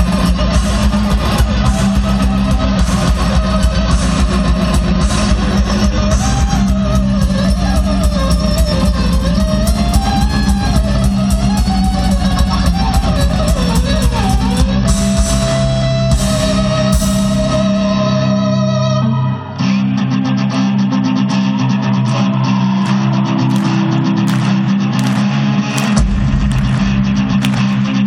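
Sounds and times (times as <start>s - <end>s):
distorted cellos playing rock: 0.0s - 28.0s
drum beat: 24.3s - 28.0s.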